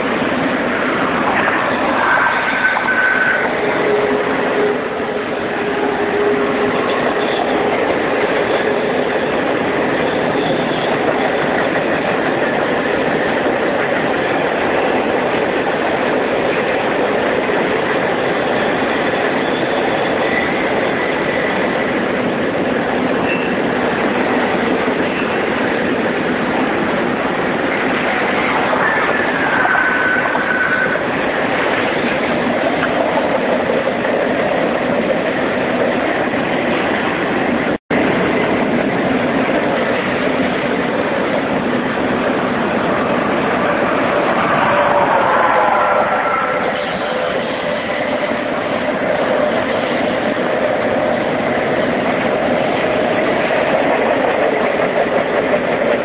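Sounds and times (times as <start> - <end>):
freight train wheels rumbling on rail: 0.0 - 56.0
wheels squealing on curve: 0.4 - 11.7, 23.2 - 33.5, 42.4 - 49.4.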